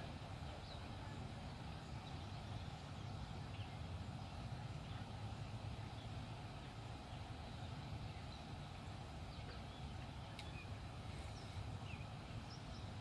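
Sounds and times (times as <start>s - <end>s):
faint bird chirps: 7.0s - 13.0s.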